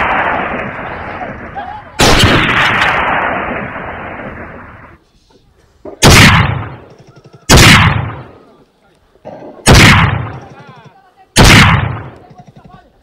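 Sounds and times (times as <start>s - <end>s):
gunshots: 0.0s - 4.6s, 5.9s - 8.4s, 9.5s - 10.8s, 11.4s - 12.8s.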